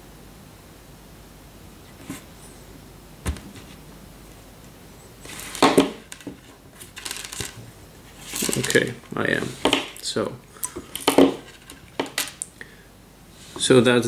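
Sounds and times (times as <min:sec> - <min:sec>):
rustling and scraping: 0:01.9 - 0:03.9, 0:05.0 - 0:12.4
needle clicking and scraping plastic: 0:08.2 - 0:12.5.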